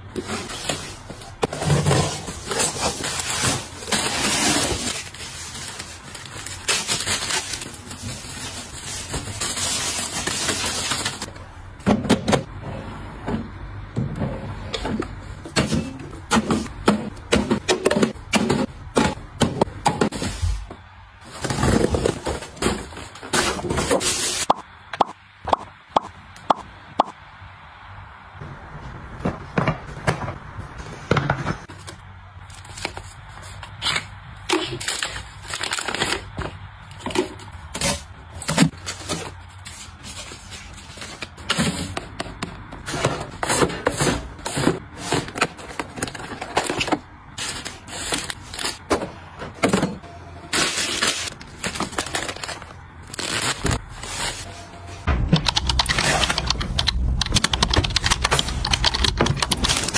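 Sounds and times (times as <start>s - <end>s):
plastic wrap crinkling: 0.2s - 11.3s, 50.6s - 54.5s.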